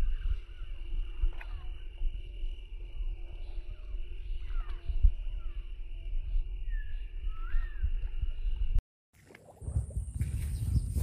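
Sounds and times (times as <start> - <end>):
bird chirps: 0.0 - 8.8
sliding whistled bird notes: 0.0 - 8.8
steady insect drone: 0.0 - 8.8
wind rumbling on microphone: 0.0 - 11.0.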